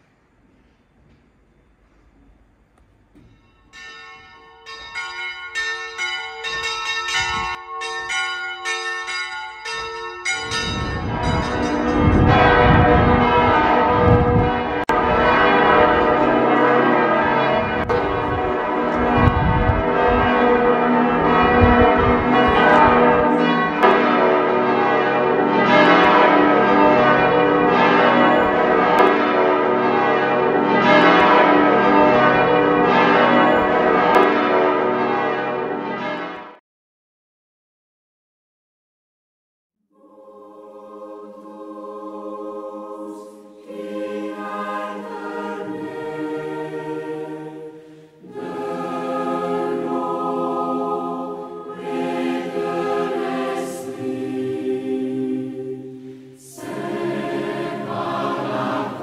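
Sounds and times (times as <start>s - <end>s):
church bells ringing: 3.1s - 36.6s, 43.3s - 59.0s.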